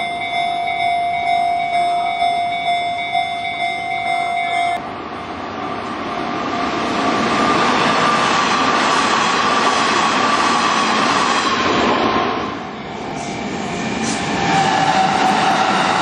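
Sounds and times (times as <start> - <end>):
crossing bell ringing: 0.0 - 4.8
train passing at speed: 0.0 - 16.0.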